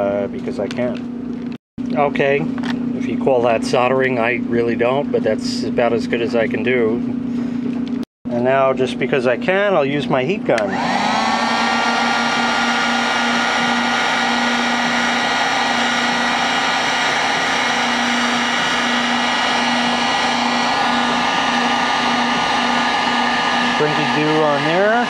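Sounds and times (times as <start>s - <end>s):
heat gun blowing air: 10.6s - 25.0s.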